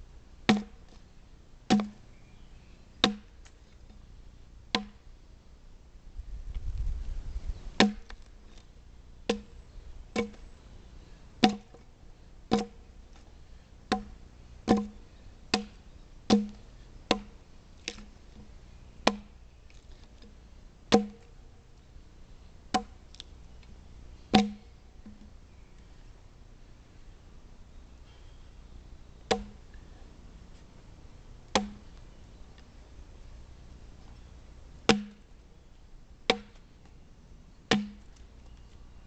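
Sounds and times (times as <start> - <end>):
axe chopping into log: 0.5 - 0.8, 1.7 - 2.0, 3.0 - 3.3, 4.8 - 5.0, 7.8 - 8.2, 9.3 - 9.5, 10.2 - 10.4, 11.4 - 11.8, 12.5 - 12.8, 13.9 - 17.3, 19.1 - 19.3, 20.9 - 21.3, 24.3 - 24.7, 29.3 - 29.6, 31.5 - 31.9, 34.9 - 35.2, 36.3 - 36.6, 37.7 - 38.0.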